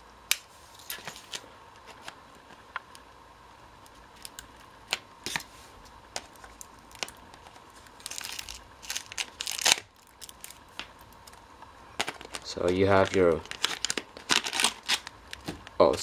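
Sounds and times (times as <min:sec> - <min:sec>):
plastic packaging crinkling: 0:06.2 - 0:16.0.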